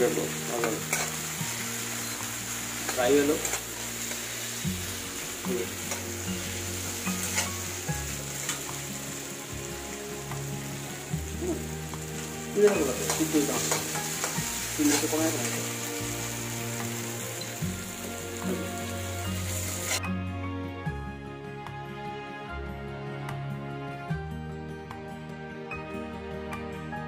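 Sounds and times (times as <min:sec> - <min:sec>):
potatoes sizzling in oil: 0:00.0 - 0:20.0
faint background music: 0:00.0 - 0:27.0
metal spatula scraping a wok: 0:05.8 - 0:07.7.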